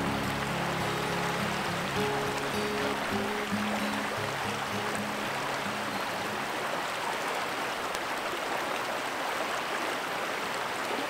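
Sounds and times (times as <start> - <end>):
background music: 0.0 - 5.8
river water rushing over cobbles: 0.0 - 11.0.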